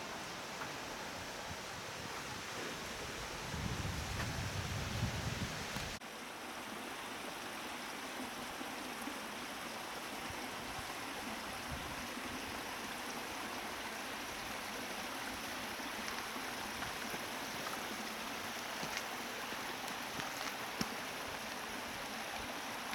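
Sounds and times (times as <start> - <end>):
waterfall rushing: 7.2 - 22.9.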